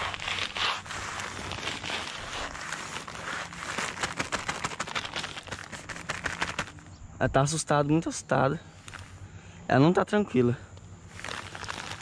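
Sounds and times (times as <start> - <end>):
sack rustling and crackling: 0.0 - 6.9, 11.1 - 12.0.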